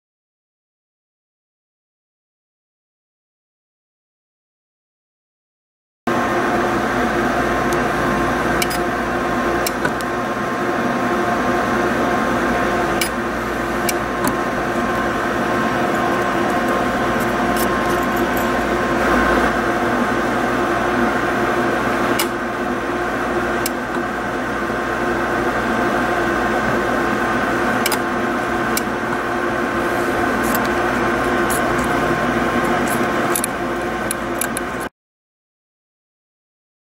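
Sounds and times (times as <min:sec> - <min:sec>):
machine hum with held tones: 0:06.1 - 0:34.9
weld head sharp clicks: 0:27.8 - 0:28.0.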